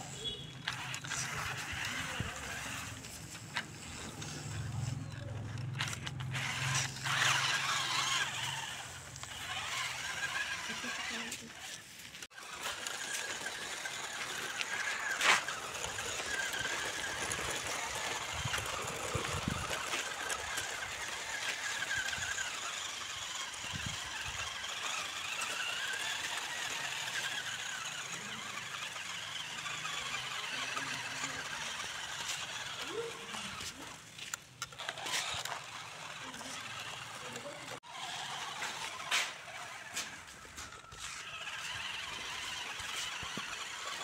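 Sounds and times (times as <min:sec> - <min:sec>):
electric motor and gearbox whining: 0:00.0 - 0:44.0
tyres on gravel: 0:00.0 - 0:44.0.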